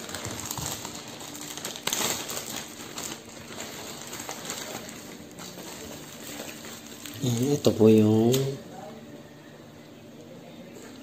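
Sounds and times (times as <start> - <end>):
plastic mailer bag tearing: 0.0 - 8.6
crinkling plastic: 0.0 - 8.7.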